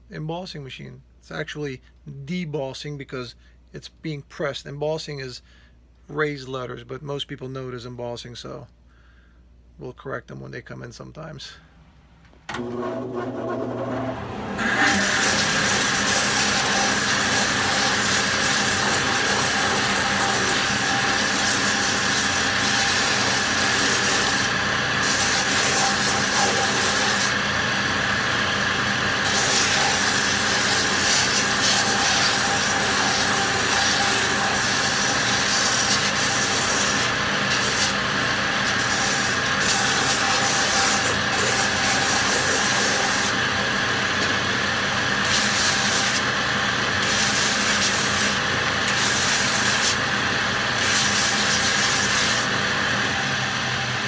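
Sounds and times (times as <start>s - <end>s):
finishing machine whining: 12.5s - 54.0s
leather rasping on sanding wheel: 14.7s - 27.4s, 29.2s - 38.0s, 38.6s - 43.4s, 45.2s - 46.3s, 47.0s - 50.0s, 50.8s - 52.5s.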